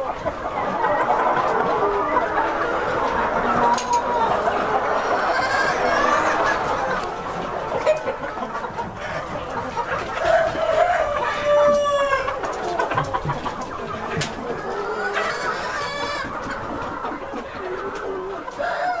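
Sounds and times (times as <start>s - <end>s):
chickens clucking: 0.0s - 19.0s
rooster crowing: 10.3s - 12.4s, 18.6s - 19.0s.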